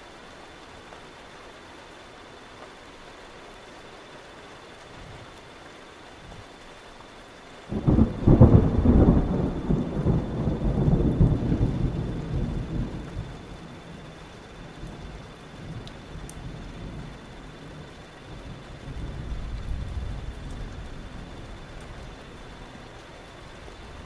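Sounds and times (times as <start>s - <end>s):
steady rain: 0.0s - 24.0s
thunder rumble: 7.7s - 24.0s.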